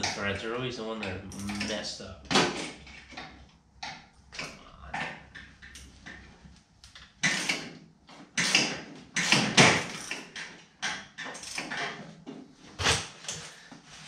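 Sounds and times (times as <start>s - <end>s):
wrench clicking and scraping metal: 6.8s - 12.0s.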